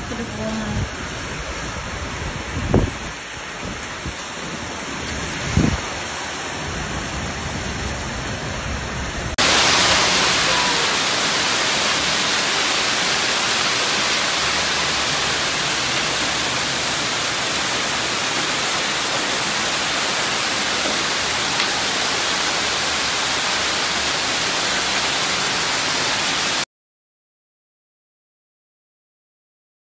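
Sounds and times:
heavy hail and rain downpour: 0.0 - 26.6.

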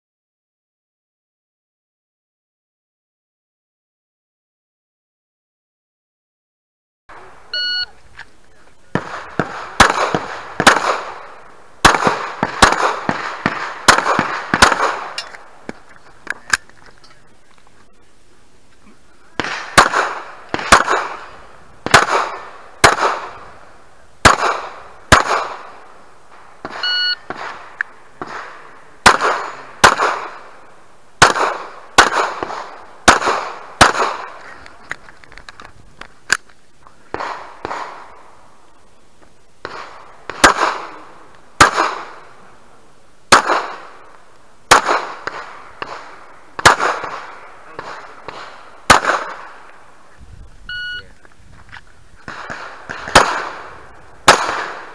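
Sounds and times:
pistol shots: 8.9 - 15.8, 19.4 - 34.4, 37.1 - 38.4, 39.6 - 42.4, 43.3 - 44.1, 44.7 - 49.8, 52.2 - 54.9.

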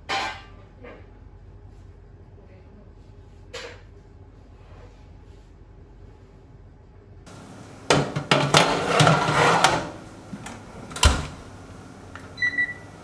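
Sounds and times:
oven door and rack clattering: 7.3 - 13.0
oven door shutting: 7.3 - 13.0.

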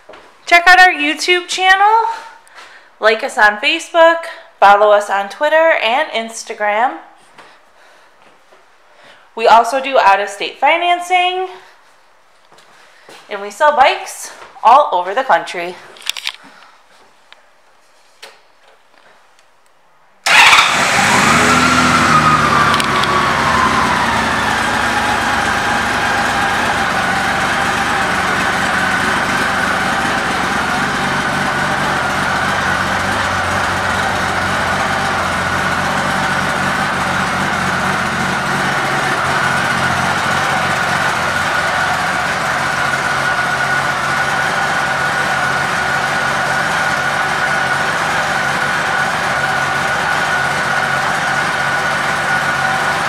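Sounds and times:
motorcycle engine starting and idling: 20.2 - 53.0.

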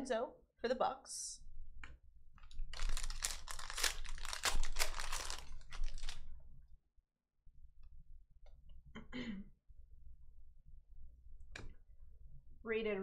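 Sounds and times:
foil wrapper crinkling and tearing: 2.4 - 6.3
cards clicking and rustling: 2.5 - 6.2.

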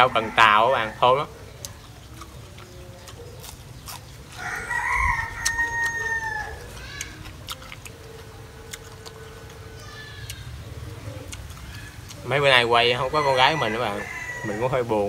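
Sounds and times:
rooster crowing: 0.0 - 1.3, 4.3 - 7.0, 12.8 - 15.0.

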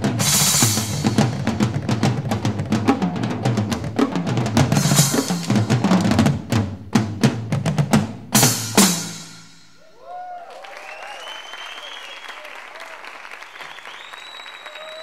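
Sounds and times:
drums and cymbals playing: 0.0 - 9.9
cymbal crash ringing: 0.2 - 1.4, 4.8 - 5.7, 8.4 - 9.8.

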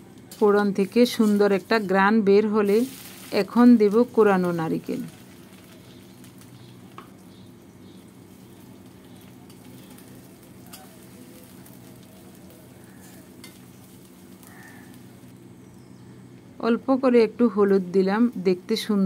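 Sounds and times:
coconut sizzling in hot oil: 0.0 - 15.6.

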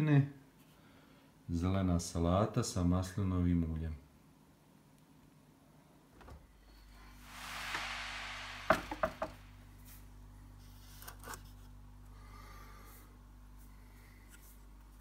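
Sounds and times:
rushing hiss: 6.9 - 10.0.

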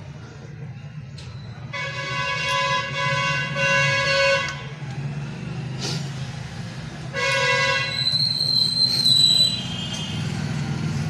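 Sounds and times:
low traffic rumble: 0.0 - 11.0
vehicle horn blast: 1.7 - 4.6, 7.1 - 8.0.

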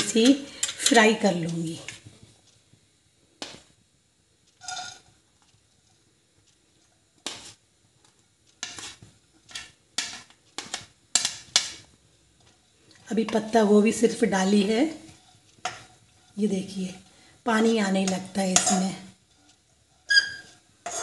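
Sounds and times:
spatula scraping into a pan: 4.6 - 5.1, 7.2 - 7.6, 8.6 - 11.9, 14.5 - 17.3, 18.1 - 21.0.

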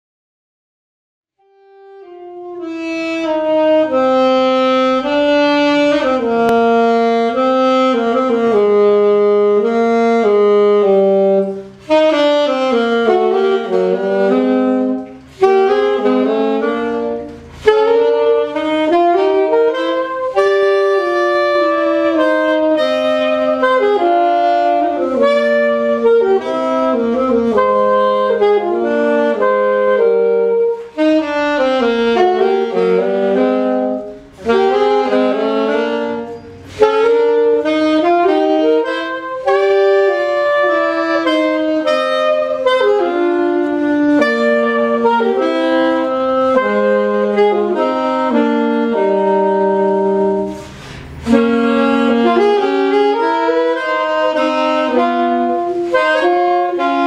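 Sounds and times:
saxophones playing jazz duet: 1.4 - 57.0.

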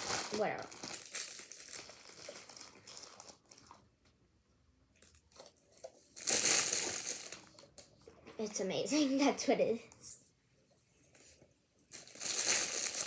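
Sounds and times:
plastic bag crinkling: 0.0 - 3.9, 5.0 - 7.6, 11.9 - 13.0.

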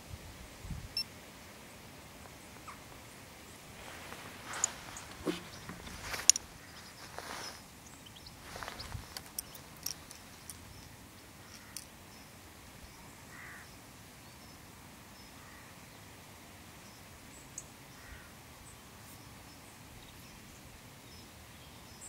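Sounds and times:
distant harsh bird calls: 2.5 - 13.8, 17.6 - 18.3
small sharp clicks: 8.6 - 11.9.

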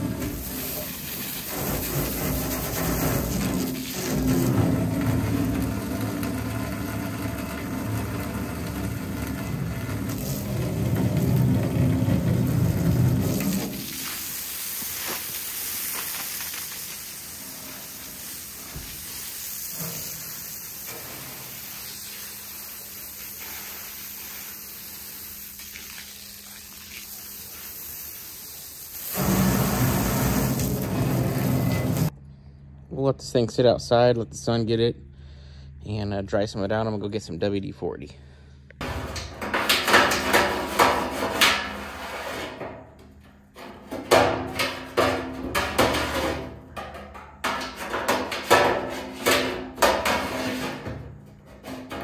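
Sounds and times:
hose spraying water into tank: 0.0 - 32.1
water splashing on concrete: 10.1 - 20.5, 21.8 - 31.6.

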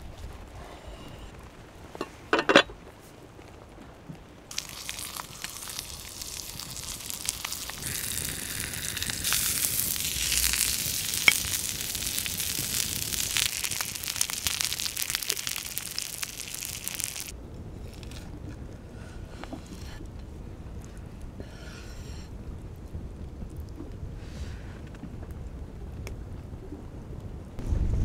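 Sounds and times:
steak sizzling with fat pops: 4.5 - 17.4.

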